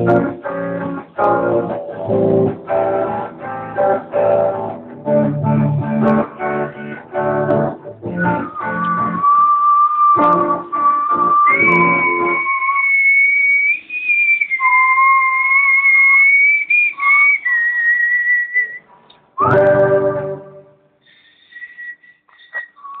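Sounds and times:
electric guitar chord: 0:00.0 - 0:08.2
high whistling tone: 0:08.0 - 0:23.0.

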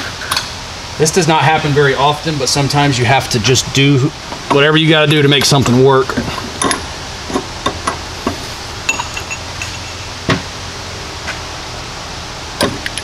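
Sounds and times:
metal clinks and knocks: 0:06.4 - 0:10.0.

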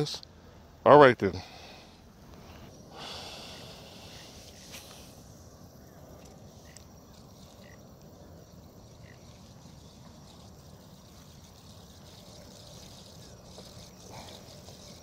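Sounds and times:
low steady hiss: 0:00.0 - 0:15.0
brief soft hiss: 0:04.2 - 0:05.2.

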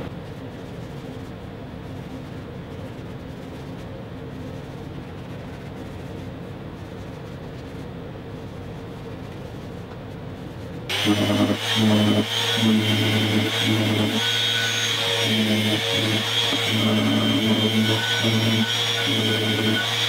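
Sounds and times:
steady low hum: 0:00.0 - 0:20.0
orbital sander on wood: 0:10.9 - 0:20.0.

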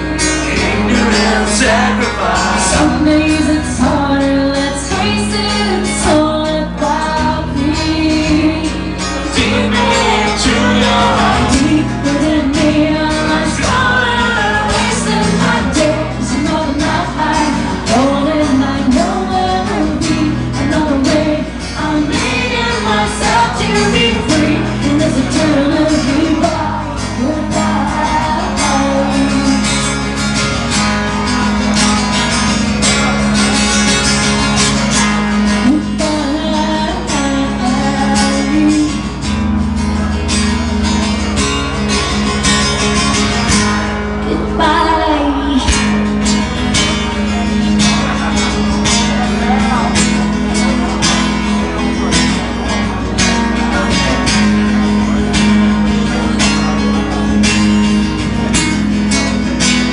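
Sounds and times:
acoustic guitars: 0:00.0 - 0:59.9
man singing: 0:00.2 - 0:05.7, 0:08.3 - 0:29.7
woman singing: 0:00.6 - 0:29.8, 0:35.6 - 0:39.1, 0:44.3 - 0:45.9.

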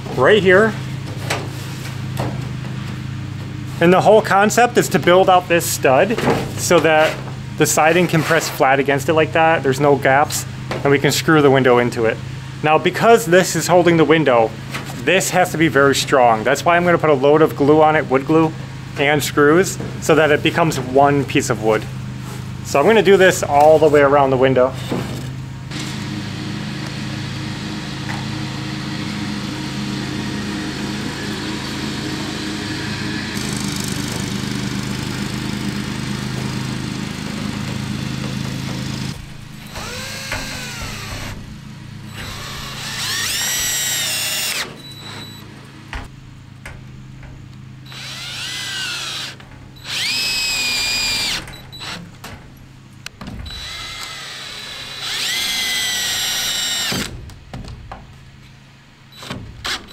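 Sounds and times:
steady hum: 0:34.6 - 0:58.4
cordless drill driving screws: 0:39.6 - 0:41.4, 0:42.1 - 0:45.4, 0:47.9 - 0:52.0, 0:53.5 - 0:57.1.

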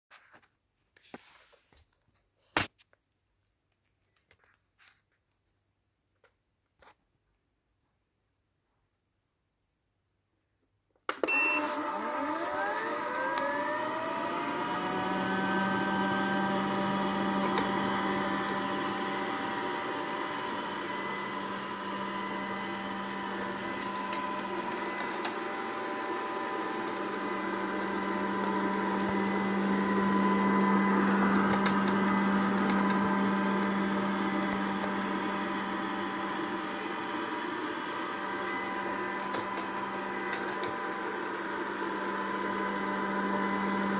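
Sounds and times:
vacuum motor whir: 0:11.1 - 0:43.9
short beep: 0:11.3 - 0:11.7.

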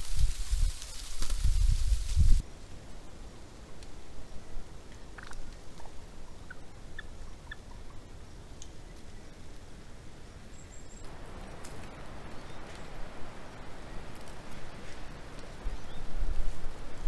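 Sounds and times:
turkey calls: 0:06.3 - 0:08.0.

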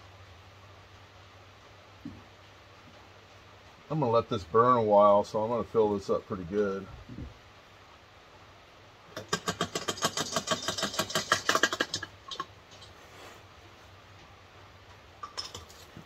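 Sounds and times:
rapid small clicks: 0:09.1 - 0:12.9.

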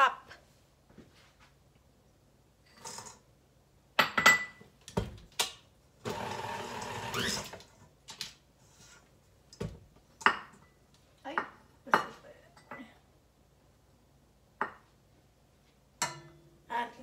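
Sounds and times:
stand mixer motor running: 0:06.1 - 0:07.4.

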